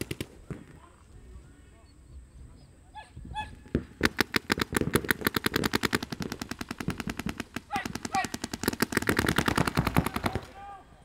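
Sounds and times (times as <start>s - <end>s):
paintball markers firing rapidly: 0.0s - 0.8s, 3.7s - 10.6s.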